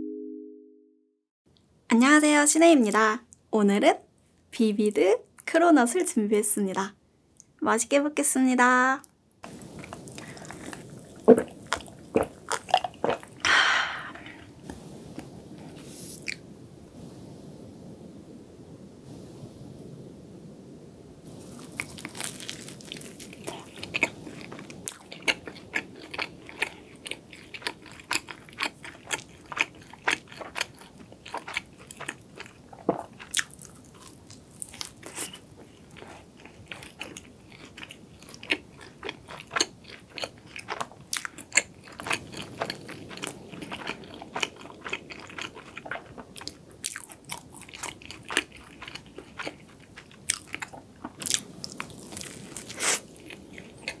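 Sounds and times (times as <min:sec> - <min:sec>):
crunchy pastry chewing: 0:09.5 - 0:13.5, 0:21.3 - 0:54.0.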